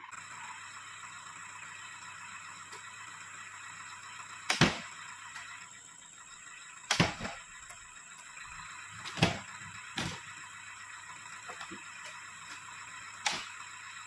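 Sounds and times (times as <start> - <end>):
fruit bunches thudding into wooden bed: 9.0 - 9.4.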